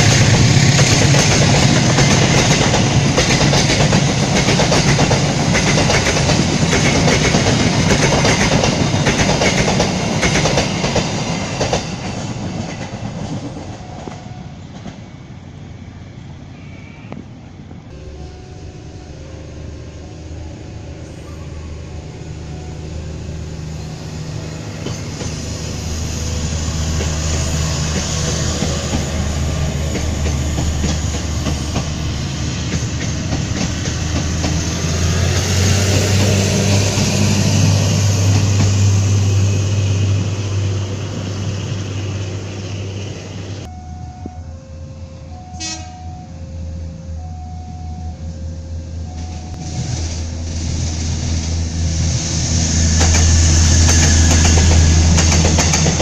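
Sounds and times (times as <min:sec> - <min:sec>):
wheels clattering on rails: 0:00.0 - 0:15.1, 0:24.7 - 0:39.0, 0:53.0 - 0:56.0
diesel railcar engine running: 0:00.0 - 0:56.0.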